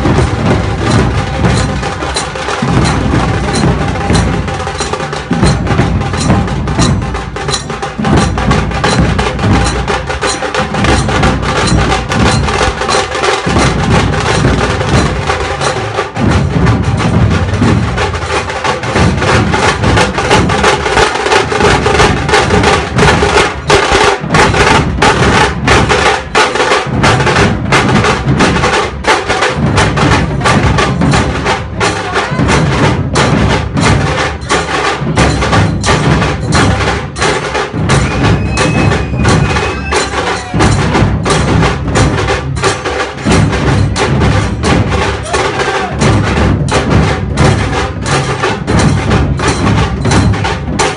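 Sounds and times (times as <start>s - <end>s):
drums beating in a steady rhythm: 0.0s - 50.9s.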